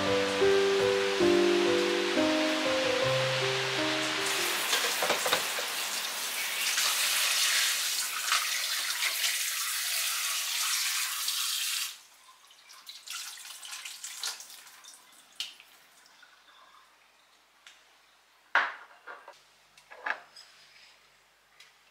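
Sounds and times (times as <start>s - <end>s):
water trickling: 4.1s - 17.2s
tap water running into sink: 4.4s - 15.7s
water splashing over chicken: 4.5s - 11.8s, 12.5s - 15.8s.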